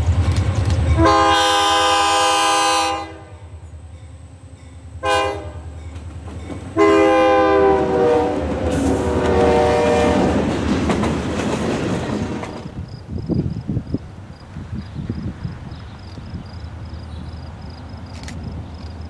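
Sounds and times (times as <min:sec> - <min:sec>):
locomotive horn blasts: 0:00.9 - 0:03.5, 0:05.0 - 0:05.8, 0:06.8 - 0:10.4, 0:12.1 - 0:12.8
freight cars rumbling and clattering: 0:10.2 - 0:19.0.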